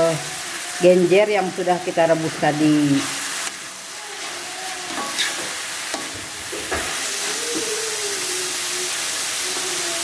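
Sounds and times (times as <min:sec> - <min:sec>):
vegetables sizzling in a wok: 0:00.0 - 0:10.0
metal spatula scraping a wok: 0:04.2 - 0:07.0.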